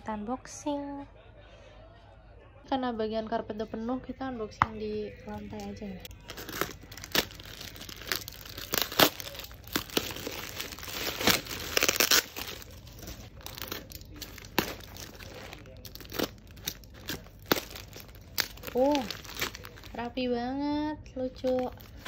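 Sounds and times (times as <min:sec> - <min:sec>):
plastic bag crinkling and tearing: 0:05.2 - 0:20.2, 0:21.3 - 0:22.0.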